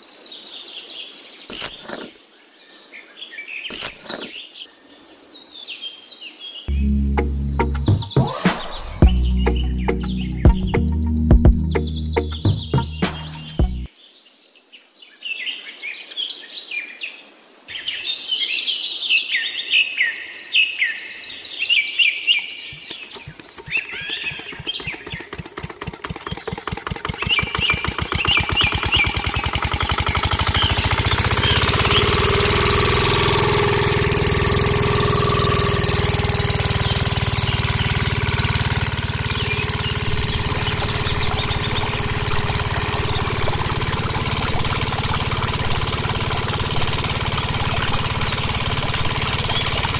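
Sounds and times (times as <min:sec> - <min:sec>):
bird chirps: 0:06.6 - 0:13.9, 0:17.7 - 0:34.5, 0:35.1 - 0:49.9
diesel engine chugging: 0:06.7 - 0:13.9, 0:22.8 - 0:49.9.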